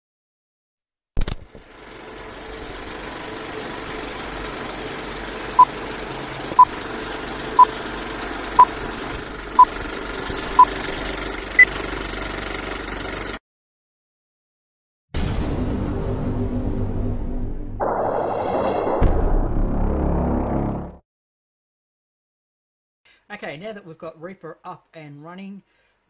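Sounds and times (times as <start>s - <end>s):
clattering film projector: 1.2s - 13.4s.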